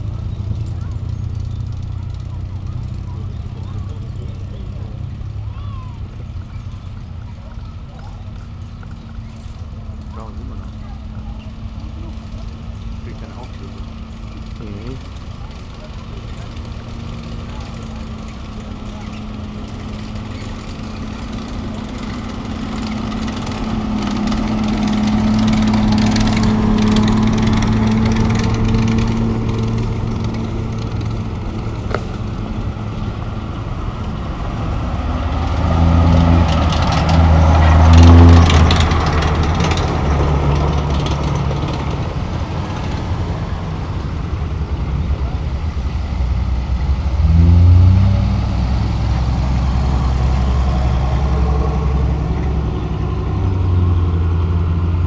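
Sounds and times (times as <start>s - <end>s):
military trucks driving past: 0.0s - 55.0s
rapid mechanical clatter: 10.0s - 32.4s, 37.9s - 43.2s.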